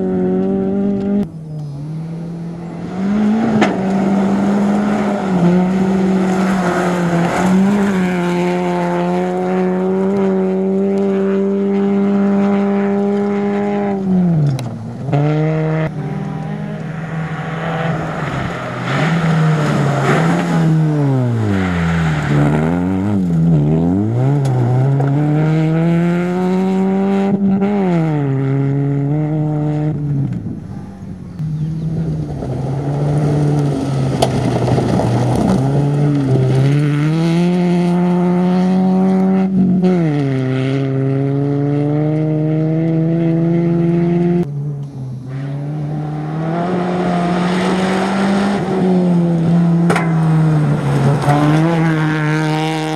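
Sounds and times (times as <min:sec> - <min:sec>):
rally car engine revving: 0:00.0 - 0:52.9
tyres on gravel: 0:01.5 - 0:08.8, 0:15.9 - 0:25.4, 0:30.1 - 0:37.8.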